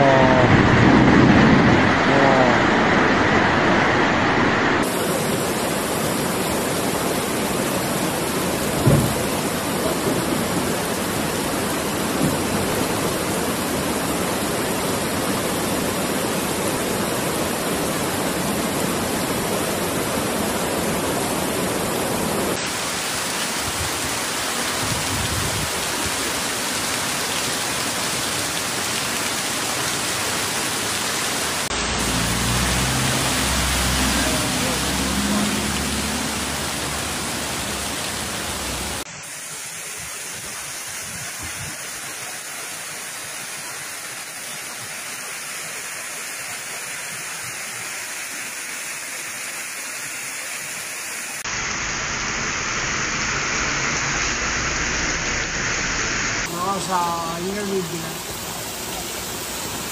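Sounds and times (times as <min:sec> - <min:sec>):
floodwater rushing down street: 0:00.0 - 0:59.9
torrential rain: 0:00.0 - 0:59.9
sharp thump: 0:08.8 - 0:09.2.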